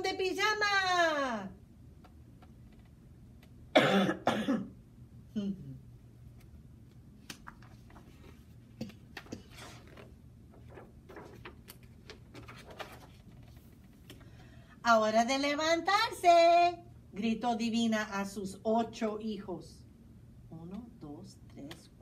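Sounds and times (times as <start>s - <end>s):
woman coughing: 3.7s - 4.8s
book page turning: 6.4s - 14.3s.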